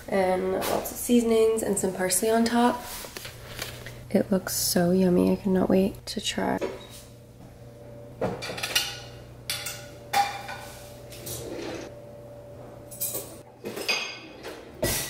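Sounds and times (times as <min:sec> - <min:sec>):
utensil scraping: 0:10.4 - 0:11.9.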